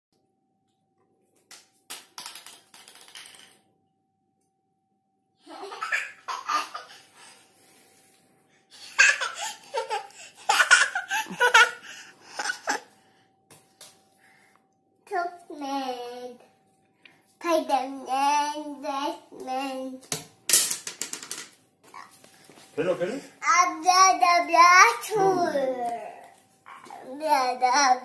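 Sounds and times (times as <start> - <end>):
toddler laughing: 5.5 - 7.1, 8.8 - 12.9.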